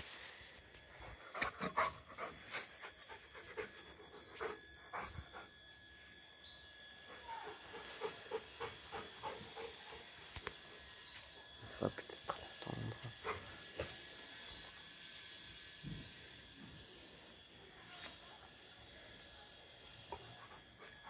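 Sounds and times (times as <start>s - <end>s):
dog panting: 1.1s - 5.6s, 7.4s - 10.1s.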